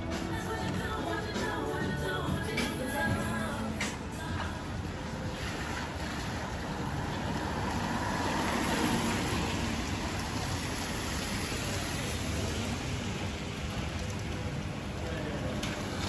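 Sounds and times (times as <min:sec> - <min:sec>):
steady rain: 0:03.6 - 0:16.0
tyres hissing on wet road: 0:04.1 - 0:16.0.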